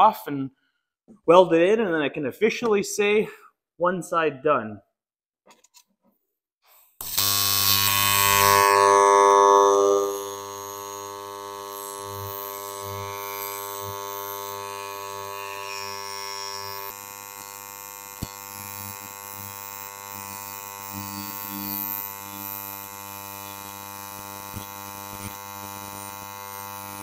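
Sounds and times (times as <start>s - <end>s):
welding arc buzzing: 7.0s - 27.0s.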